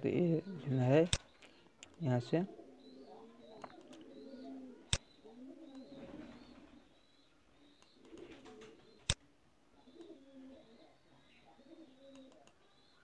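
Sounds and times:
faint low bird calls: 0.0 - 13.0
mouse clicks: 12.1 - 12.6.

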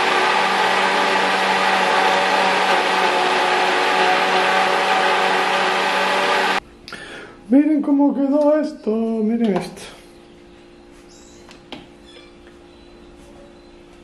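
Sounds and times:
blender motor running: 0.0 - 6.6.

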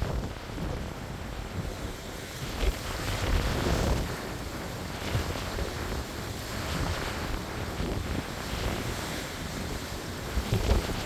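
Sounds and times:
wind buffeting microphone: 0.0 - 11.0
surf breaking on rocks: 1.6 - 11.0.

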